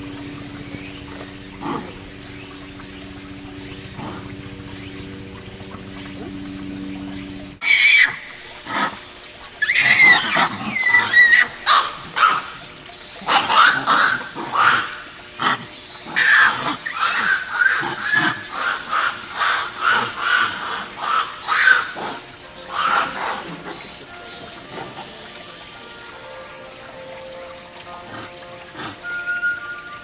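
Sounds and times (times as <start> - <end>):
monkeys screaming in a fight: 7.6 - 9.0, 9.6 - 23.8.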